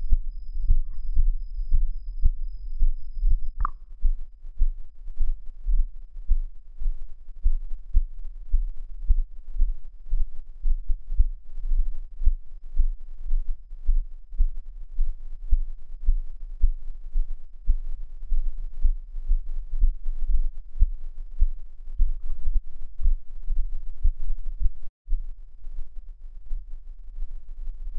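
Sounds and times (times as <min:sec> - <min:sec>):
humming drone: 0:00.0 - 0:03.7
low heartbeat-like pulse: 0:00.0 - 0:27.9.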